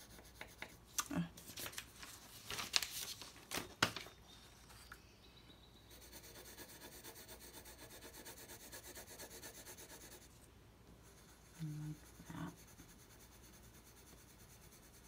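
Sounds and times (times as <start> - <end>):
pencil shading on paper: 0.0 - 0.8, 5.9 - 10.4, 11.0 - 15.0
paper rustling: 1.4 - 4.8.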